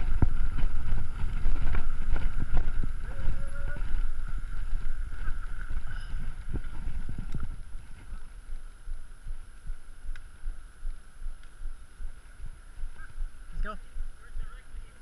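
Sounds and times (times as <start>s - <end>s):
bike rolling over concrete: 0.0s - 8.6s
sharp ticks: 8.9s - 14.2s.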